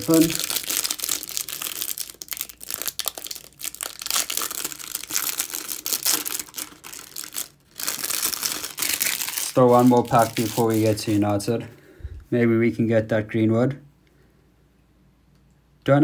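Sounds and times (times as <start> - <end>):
plastic wrapper crinkling: 0.0 - 11.5.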